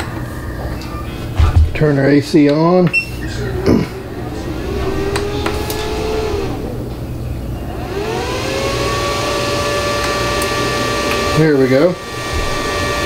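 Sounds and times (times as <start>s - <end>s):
electric whine: 3.3s - 13.0s
power station hum: 3.3s - 13.0s
clicks: 5.1s - 5.9s.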